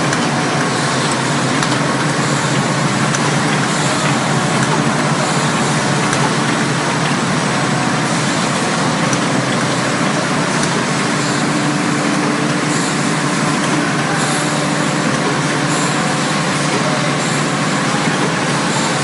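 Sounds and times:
packing machine mechanical din: 0.0s - 19.0s.

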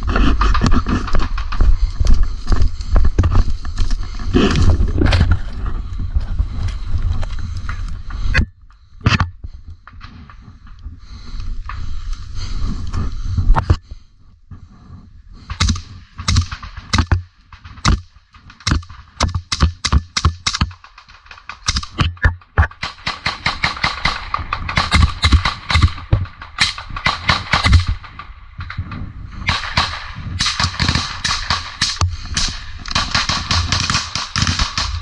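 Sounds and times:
assault rifle fire: 29.5s - 35.0s.

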